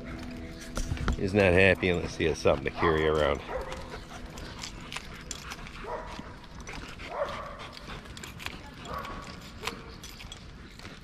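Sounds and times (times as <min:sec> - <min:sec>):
dog barking: 0:02.8 - 0:03.9, 0:05.8 - 0:06.2, 0:07.1 - 0:07.7.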